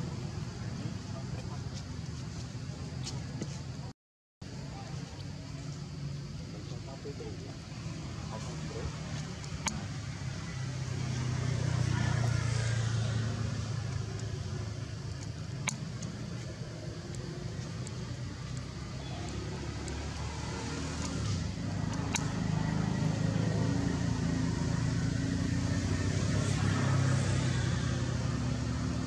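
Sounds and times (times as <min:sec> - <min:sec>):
vehicle engine rumble: 0:00.0 - 0:29.0
sharp clicks: 0:08.9 - 0:09.8, 0:13.4 - 0:22.8.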